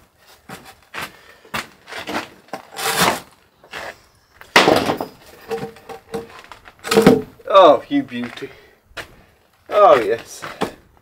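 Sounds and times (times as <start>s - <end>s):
wooden beam scraping and knocking: 1.8s - 8.5s.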